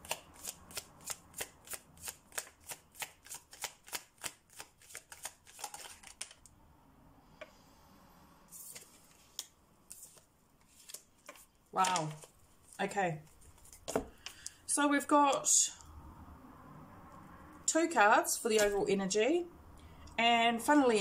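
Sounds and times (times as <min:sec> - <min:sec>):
cards being shuffled: 0:00.0 - 0:06.4, 0:08.6 - 0:14.6, 0:18.5 - 0:18.8.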